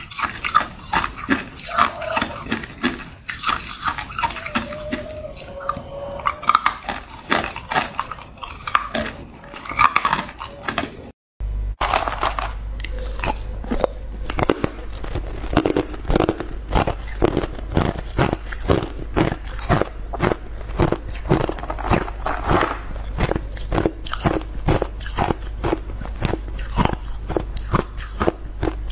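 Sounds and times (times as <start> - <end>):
low steady hum: 0.0 - 28.9
ice cubes crunching: 11.8 - 28.8.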